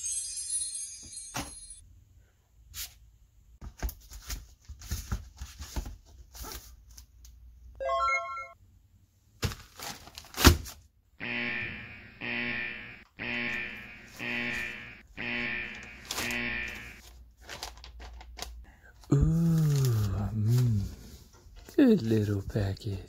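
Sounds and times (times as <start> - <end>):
cardboard and tape crackling: 9.4 - 10.8, 15.6 - 20.8.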